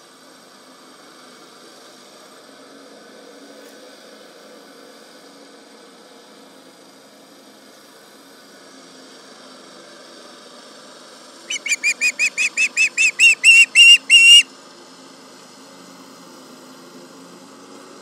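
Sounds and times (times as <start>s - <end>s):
faint engine hum: 0.0s - 18.0s
osprey shrill alarm calls: 11.5s - 14.5s.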